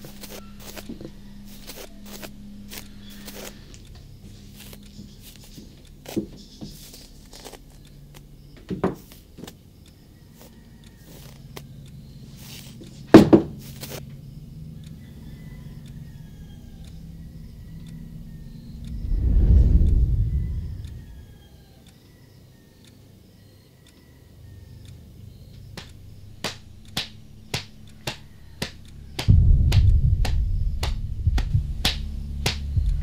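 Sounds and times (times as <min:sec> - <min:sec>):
low steady hum: 0:00.0 - 0:10.8, 0:11.4 - 0:21.8, 0:24.8 - 0:33.0
deep rumbling swell: 0:16.8 - 0:21.6, 0:25.9 - 0:33.0
sharp knocks: 0:25.8 - 0:33.0.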